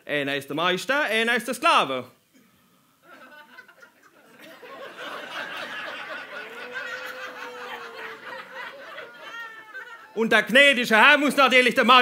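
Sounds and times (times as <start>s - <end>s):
audience laughing: 3.0s - 10.2s.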